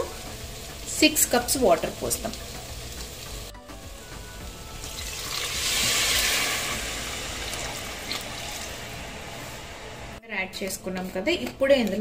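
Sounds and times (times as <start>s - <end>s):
water pouring into a pot: 4.8s - 10.0s.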